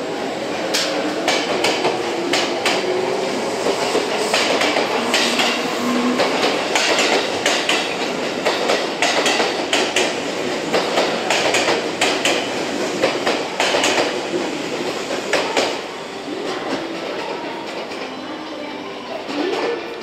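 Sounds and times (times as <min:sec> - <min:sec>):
train wheels clacking over rail joints: 0:03.7 - 0:15.8.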